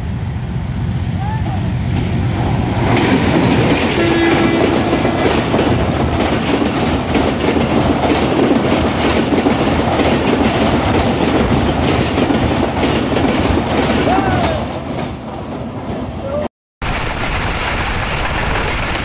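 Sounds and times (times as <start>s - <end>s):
train wheels rumbling on rails: 0.0s - 16.4s
clatter over rail joints: 2.9s - 15.2s.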